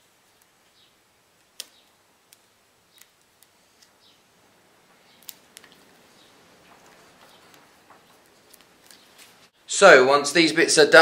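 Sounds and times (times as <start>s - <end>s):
faint rustling: 2.9s - 9.6s.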